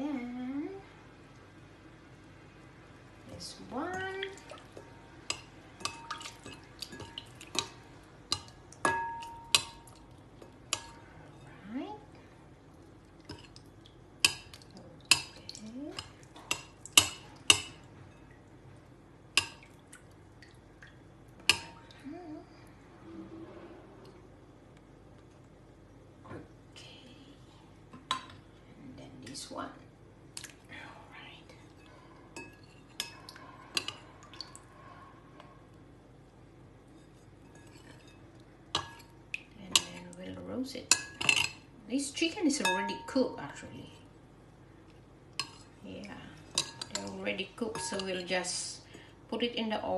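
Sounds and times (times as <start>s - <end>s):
spoon clinking glass bowl: 8.4s - 10.0s, 42.6s - 43.3s, 46.6s - 48.3s.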